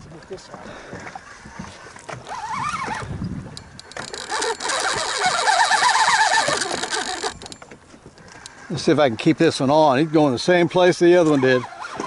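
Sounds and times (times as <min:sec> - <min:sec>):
fishing reel drag buzzing: 0:02.2 - 0:07.6, 0:11.2 - 0:12.0.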